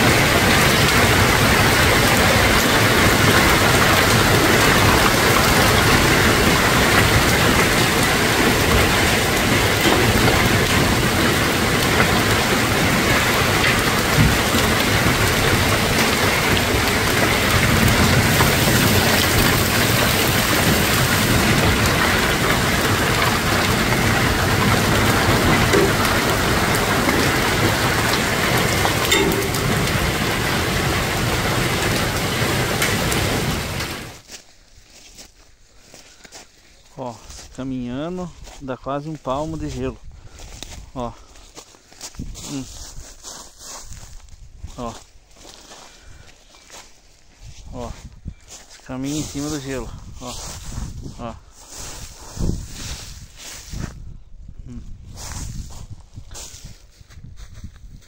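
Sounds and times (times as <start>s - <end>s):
heavy rain and hail falling: 0.0s - 34.3s
sharp hailstone hits: 0.1s - 34.2s.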